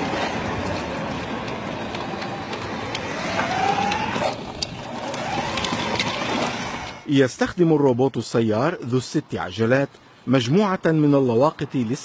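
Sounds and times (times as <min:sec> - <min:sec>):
rising whine: 0:00.0 - 0:07.1
city street traffic: 0:00.0 - 0:12.0.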